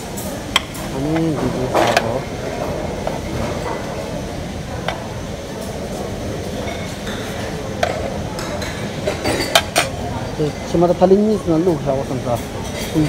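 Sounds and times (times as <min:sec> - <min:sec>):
steady rumbling background noise: 0:00.0 - 0:12.8.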